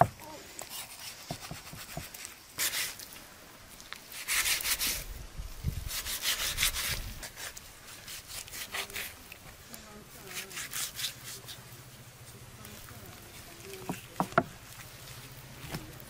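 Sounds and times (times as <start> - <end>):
knife scraping meat from bone: 5.8 - 9.3, 10.3 - 11.6.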